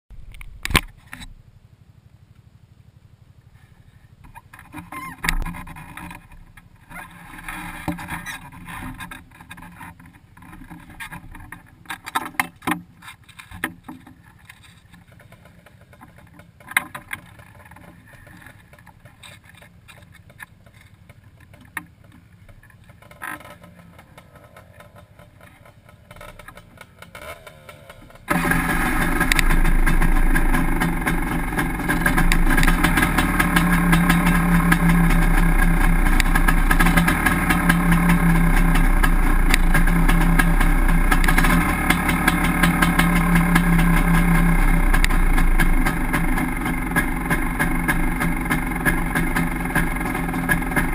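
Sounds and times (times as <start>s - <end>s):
engine starting and running loudly: 23.4s - 50.9s.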